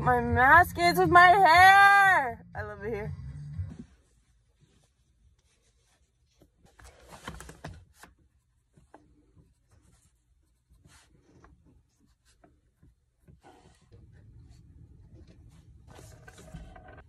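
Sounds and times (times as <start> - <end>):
page rustle: 4.8 - 9.0.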